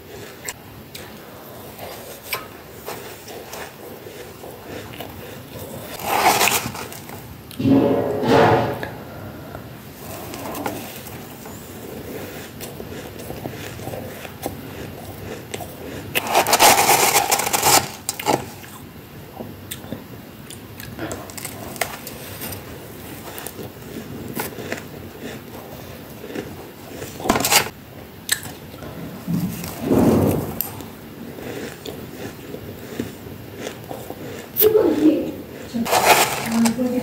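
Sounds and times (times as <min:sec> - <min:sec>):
crunching frost in the mouth: 0:00.0 - 0:07.6, 0:09.9 - 0:18.9, 0:19.7 - 0:37.0
metal spoon scraping frost: 0:05.5 - 0:09.1, 0:10.0 - 0:18.7, 0:26.9 - 0:27.7, 0:34.2 - 0:37.0.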